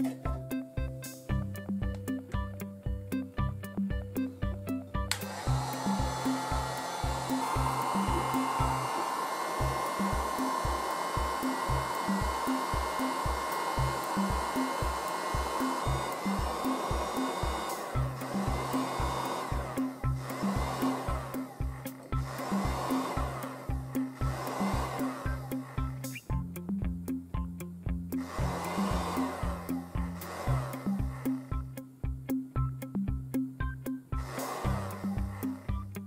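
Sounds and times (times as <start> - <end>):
background music with beat: 0.0 - 36.0
heat gun blowing air: 5.1 - 26.3, 28.2 - 31.6, 34.2 - 35.9.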